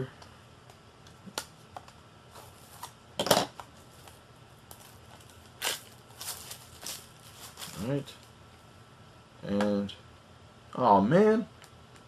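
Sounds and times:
packaging rustling: 3.9 - 8.3.

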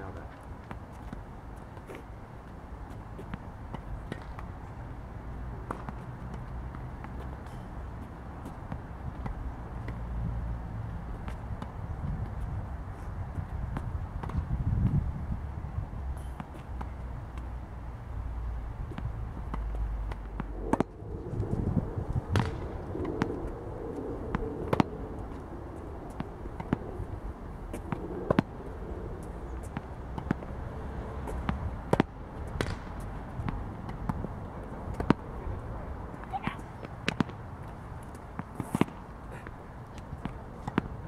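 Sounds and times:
tennis balls hit by racket: 2.8 - 4.6, 5.6 - 10.2, 18.9 - 20.9, 22.3 - 23.3, 27.7 - 28.5, 29.2 - 30.6, 31.2 - 35.6, 36.2 - 41.0
balls bouncing on hard court: 5.6 - 7.6, 8.4 - 10.1, 13.4 - 15.0, 22.3 - 23.4, 26.1 - 26.9, 27.7 - 28.5, 29.6 - 30.6, 31.2 - 35.3, 36.2 - 41.0.

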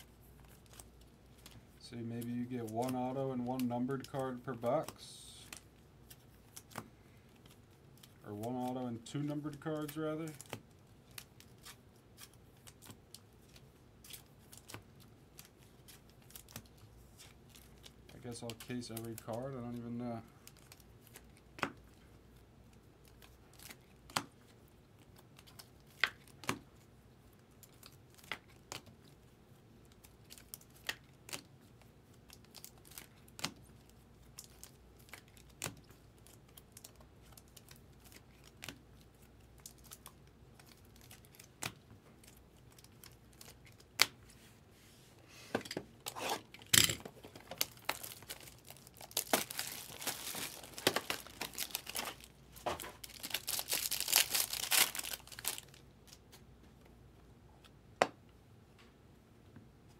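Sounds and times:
foil pack crinkling and tearing: 0.1 - 21.6, 27.4 - 44.2, 46.0 - 56.3.

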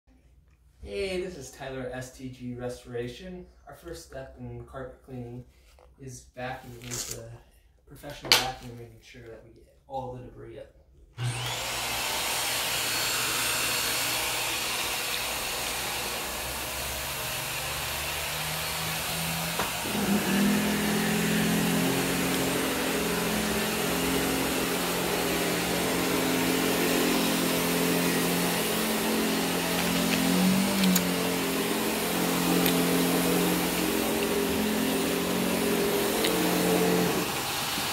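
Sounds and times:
vacuum cleaner running on carpet: 11.2 - 37.9.

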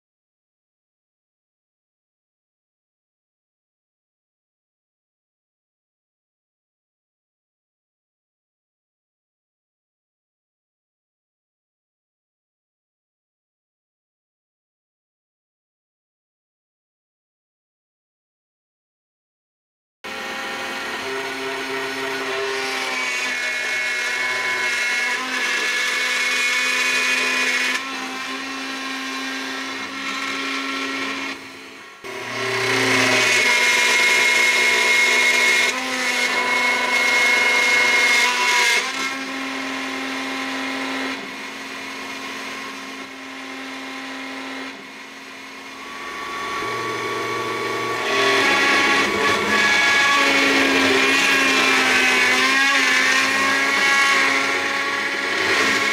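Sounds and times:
bit routing into wood: 20.1 - 55.9
spindle whine: 45.7 - 51.0.

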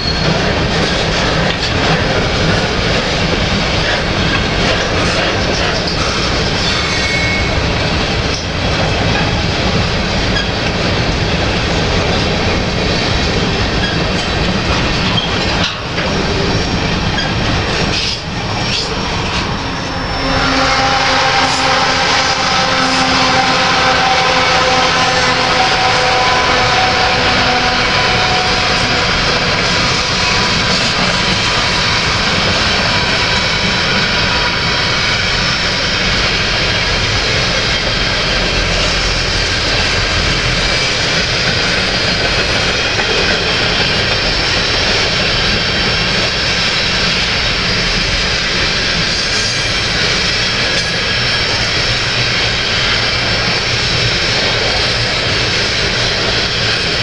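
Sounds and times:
steel wheels rumbling on rails: 0.0 - 57.0.

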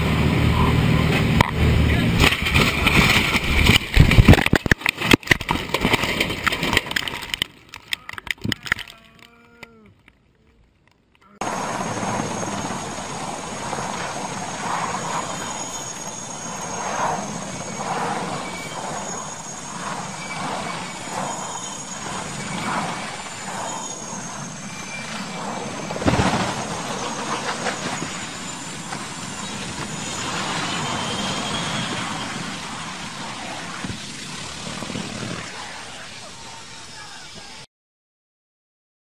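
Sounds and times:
helicopter engines and rotor: 0.0 - 6.0, 11.4 - 37.6
rumbling noise: 0.0 - 37.0
loud crash impact: 25.8 - 28.2.

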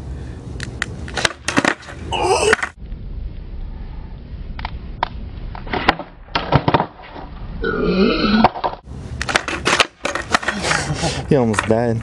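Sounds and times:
person vocalizing: 2.1 - 2.7, 7.6 - 8.4
low rumble: 2.7 - 6.4
skateboard clacks on concrete: 8.5 - 10.6.

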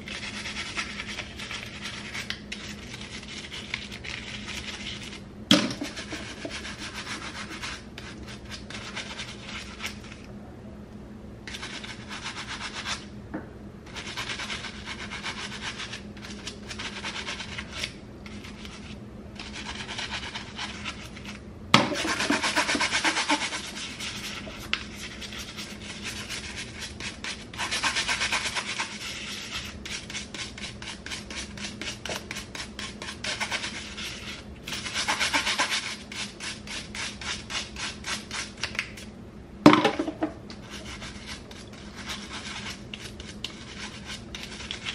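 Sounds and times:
brush scrubbing comb teeth: 0.0 - 10.3, 11.5 - 13.1, 13.9 - 39.1, 40.6 - 44.9.

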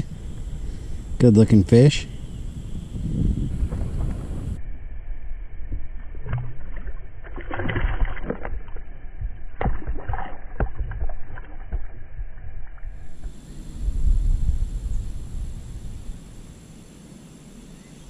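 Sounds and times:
low rumble: 0.0 - 16.9
water splashing: 5.8 - 13.5.

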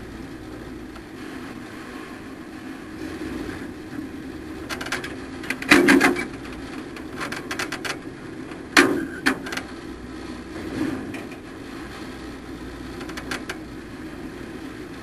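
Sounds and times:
truck engine running: 0.0 - 15.0
sharp clunks and rattles: 4.6 - 9.8, 10.7 - 11.5, 12.9 - 13.7.

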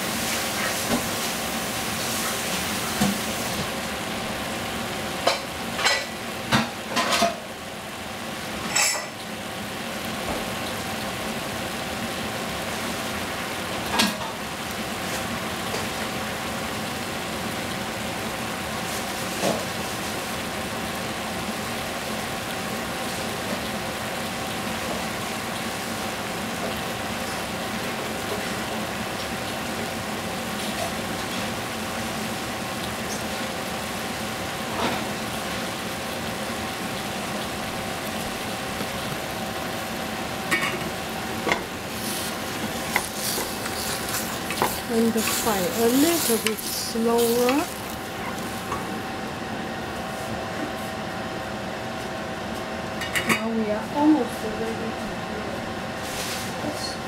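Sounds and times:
vegetables sizzling in a pot: 0.0 - 57.0
oil popping: 34.8 - 49.0.

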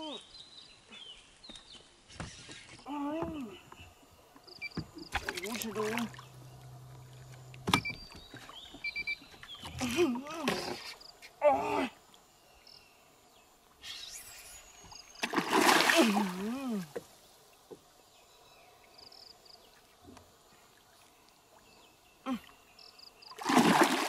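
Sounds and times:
fish splashing in water: 15.2 - 16.4, 23.4 - 24.0.

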